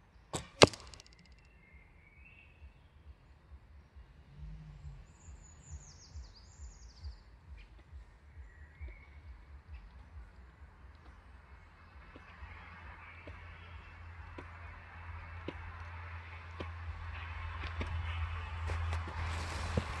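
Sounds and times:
bird chirping: 0.0 - 19.5
arrow hitting target: 0.3 - 1.4
bowstring snap: 0.4 - 1.5.

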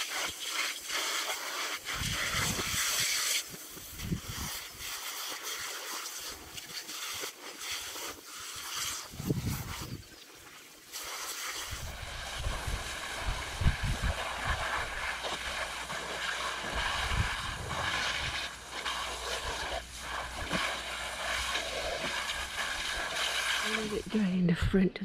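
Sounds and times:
garden hose spraying water: 0.0 - 24.9
wind rumbling on microphone: 1.8 - 4.9, 9.1 - 10.1, 11.6 - 25.0.

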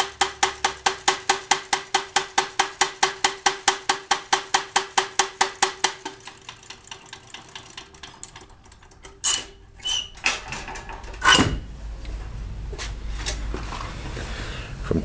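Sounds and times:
machine punching saw teeth: 0.0 - 11.7
knocks and clanks: 0.0 - 12.4
steady machine hum: 0.0 - 14.9.

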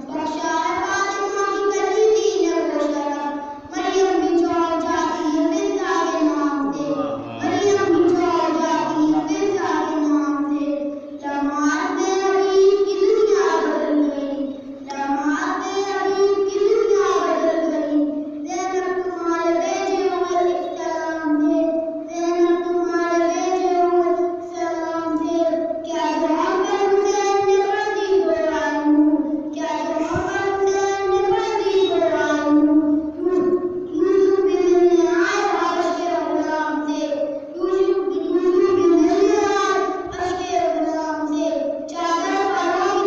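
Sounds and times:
boy chanting solo: 6.6 - 10.5.

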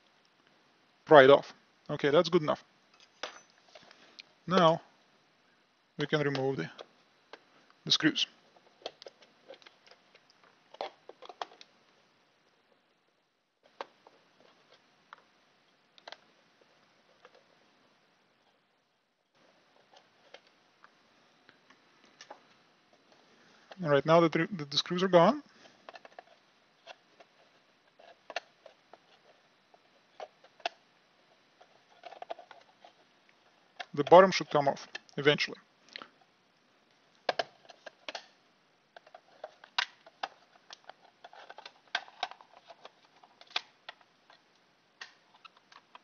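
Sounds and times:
plastic case clicking and creaking: 8.7 - 11.7, 31.6 - 33.0, 37.2 - 46.0.

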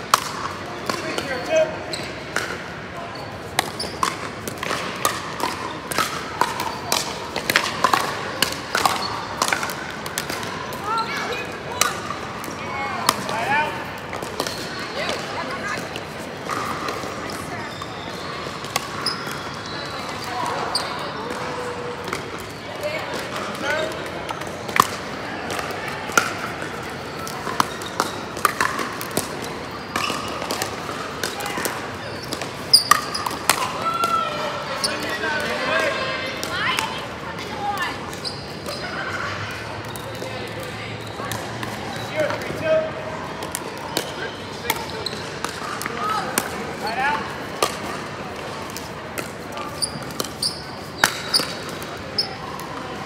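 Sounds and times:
paddles hitting plastic ball: 3.6 - 10.9, 23.1 - 34.2, 47.6 - 50.4, 51.0 - 52.8.

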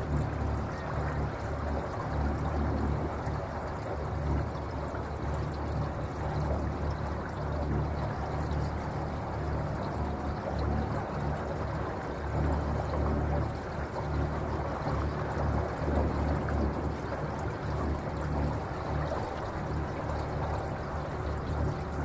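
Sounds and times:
water rushing against hull: 0.0 - 22.0.

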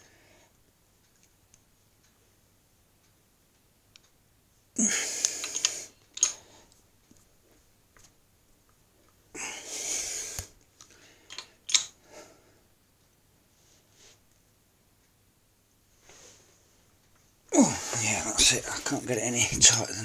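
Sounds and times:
person exhaling with effort: 4.8 - 5.9, 17.5 - 18.3.

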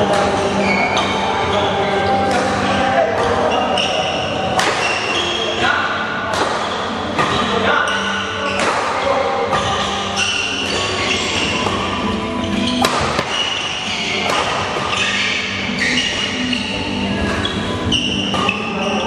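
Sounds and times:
shoes squeaking on court floor: 0.0 - 19.0
rackets hitting shuttlecock: 4.5 - 5.3, 6.2 - 18.9.

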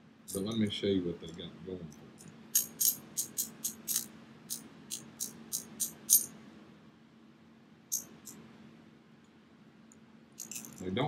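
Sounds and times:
pliers ratchet clicking: 2.6 - 4.1, 4.9 - 6.3.

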